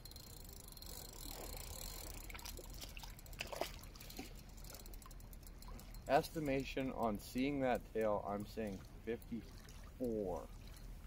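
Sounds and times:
faint trickling water: 0:00.0 - 0:11.0.

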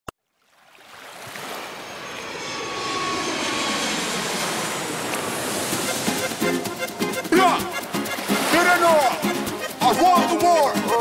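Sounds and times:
boat engine running: 0:01.7 - 0:09.8
rushing bow spray: 0:07.8 - 0:09.5.

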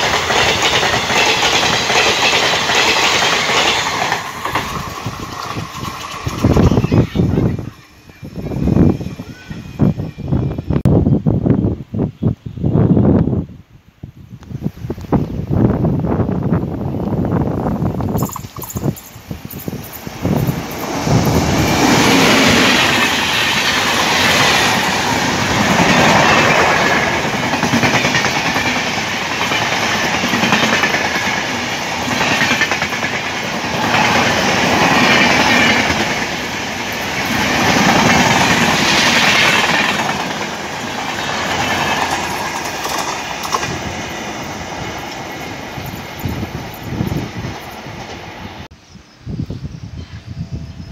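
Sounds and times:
train wheels clickety-clack: 0:00.0 - 0:07.0, 0:18.1 - 0:48.3.

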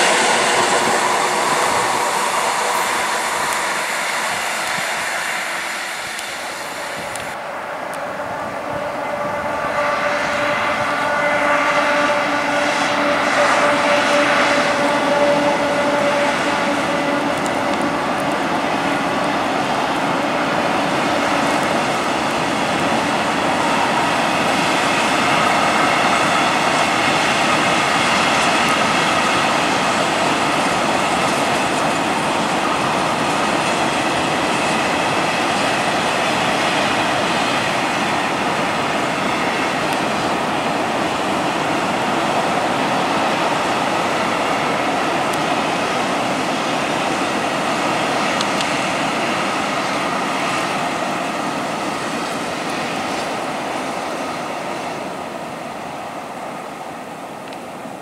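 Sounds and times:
steady tone: 0:00.0 - 0:19.8.

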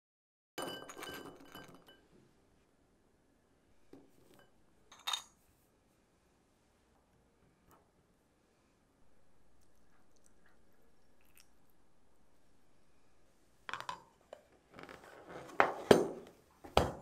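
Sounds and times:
glassware clinking: 0:00.6 - 0:02.1, 0:04.0 - 0:05.4.

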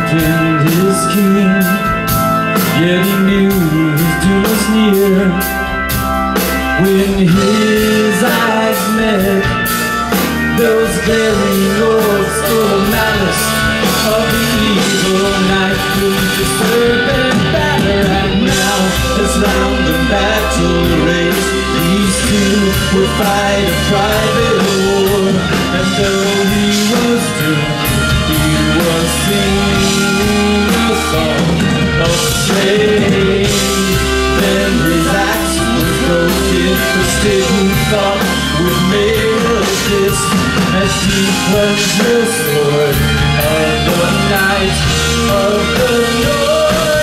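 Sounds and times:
drum kit with cymbals: 0:00.0 - 0:47.0
electric guitars: 0:00.0 - 0:47.0
keyboards: 0:00.0 - 0:47.0.

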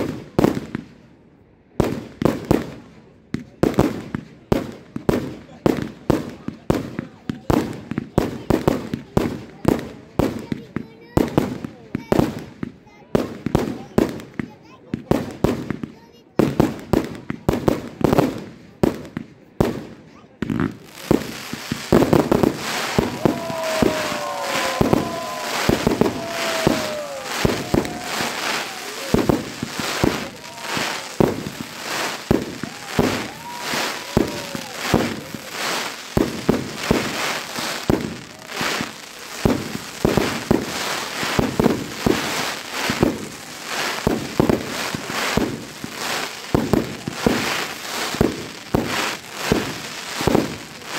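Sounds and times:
fireworks launches and bursts: 0:00.0 - 0:01.0, 0:01.7 - 0:50.9
fireworks whistling: 0:20.5 - 0:50.9.

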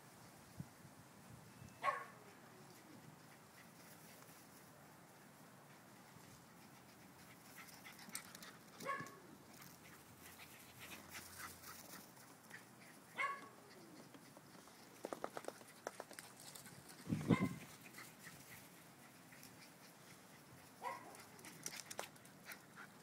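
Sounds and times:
dog whining yelps: 0:01.8 - 0:02.2, 0:08.8 - 0:09.2, 0:13.2 - 0:13.6.

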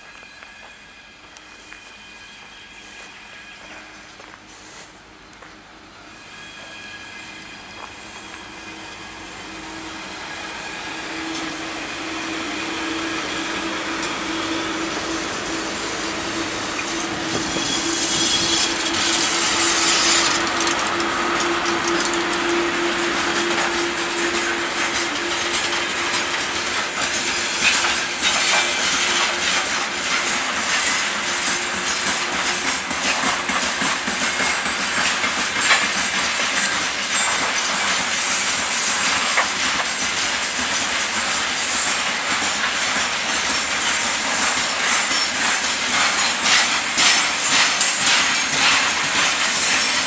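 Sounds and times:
electric locomotive drone: 0:00.0 - 0:50.0
freight wagon wheels clattering: 0:18.1 - 0:40.9.

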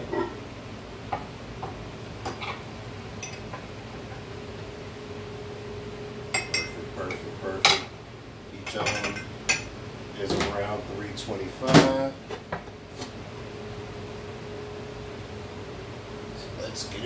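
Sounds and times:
glass cups clinking: 0:03.2 - 0:03.6, 0:06.3 - 0:06.8, 0:08.7 - 0:09.7.

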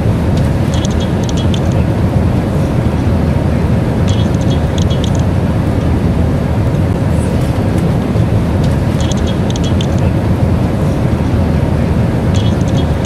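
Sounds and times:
airliner cabin rumble: 0:00.0 - 0:13.0.

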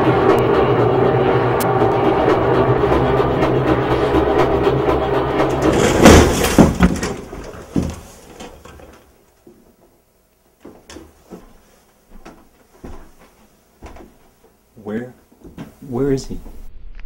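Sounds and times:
door banging: 0:03.4 - 0:09.0
faint knocks and shuffles: 0:06.9 - 0:14.6.

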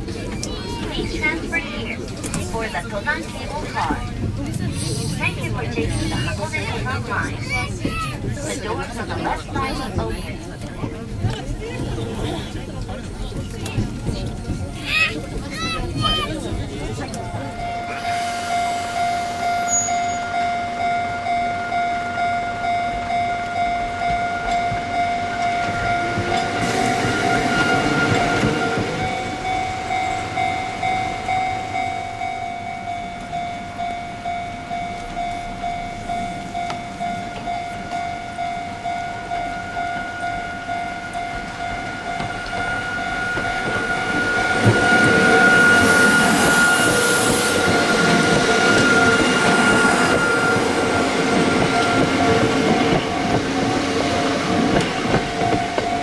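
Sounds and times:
train wheels rumbling and clattering: 0:00.0 - 0:56.0
level crossing alarm dinging: 0:17.4 - 0:56.0.

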